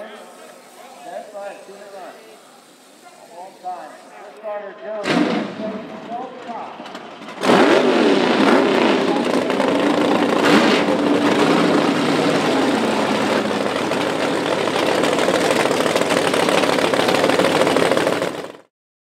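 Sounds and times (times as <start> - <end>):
drag racing engine running: 5.1 - 18.7.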